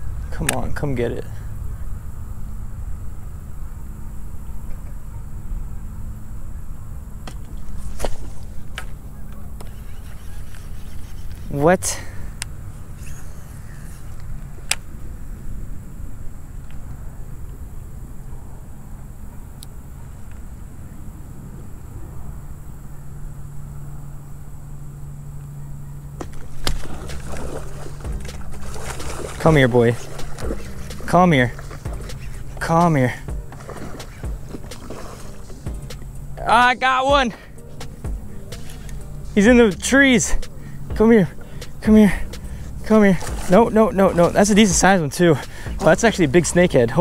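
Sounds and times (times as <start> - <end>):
low outdoor background noise: 0.0 - 47.0
wind rumble on microphone: 12.2 - 36.4.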